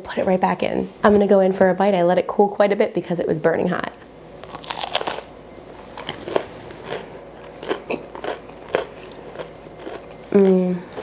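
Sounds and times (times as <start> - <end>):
crunchy bite into bread: 4.4 - 5.3
crunchy chewing: 4.4 - 5.3, 5.9 - 11.0.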